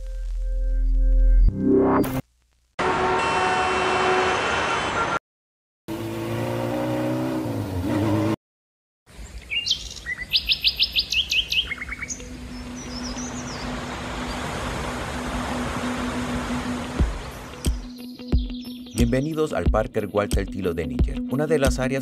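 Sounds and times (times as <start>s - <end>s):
birds chirping: 9.2s - 14.6s, 16.1s - 19.6s.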